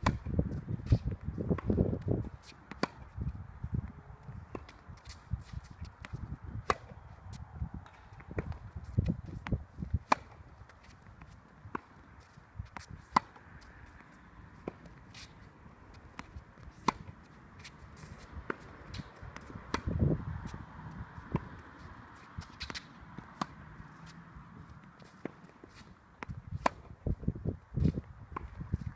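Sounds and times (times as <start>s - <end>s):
tennis ball hit and bouncing: 0.0s - 3.3s, 4.4s - 27.2s, 27.8s - 28.9s
footsteps scuffing on court: 4.2s - 27.0s.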